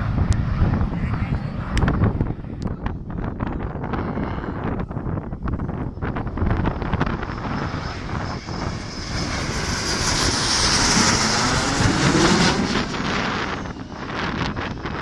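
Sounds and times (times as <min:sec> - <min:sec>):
jets passing low overhead: 0:00.0 - 0:15.0.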